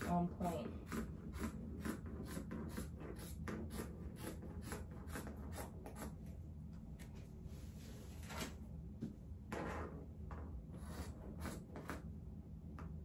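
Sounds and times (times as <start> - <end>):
marker scratching on woven blanket: 0.0 - 6.3, 10.8 - 12.1.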